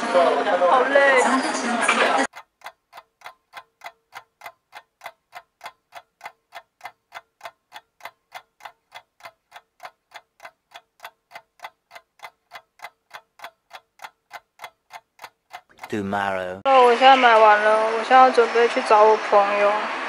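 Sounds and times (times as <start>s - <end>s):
clock ticking: 2.2s - 16.6s.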